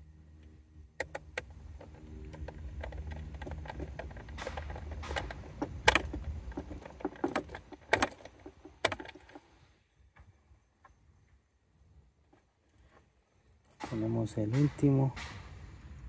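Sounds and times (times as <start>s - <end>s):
steady low hum: 0.0s - 16.0s
small parts clicking and clinking: 1.0s - 9.5s
sharp knocks: 13.8s - 15.6s.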